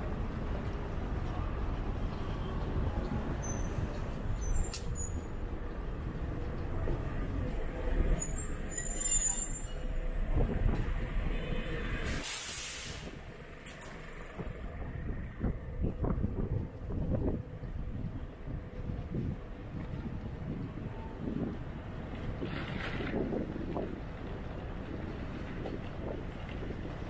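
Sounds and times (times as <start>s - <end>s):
faint high squeaks: 3.3s - 5.6s, 6.2s - 10.0s
bus engine running: 9.6s - 27.0s
air brake hiss: 12.0s - 13.2s.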